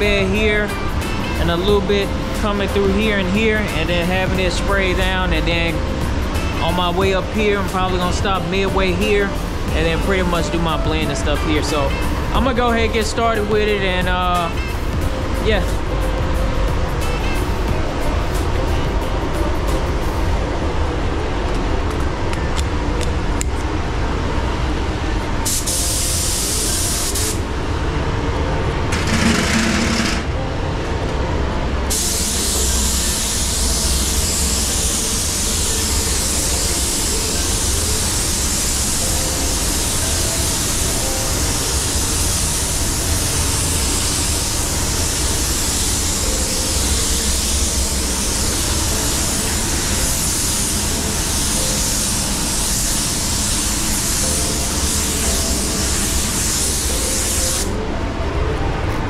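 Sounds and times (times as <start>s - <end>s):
spray gun air hiss: 25.4s - 27.5s, 31.9s - 57.8s.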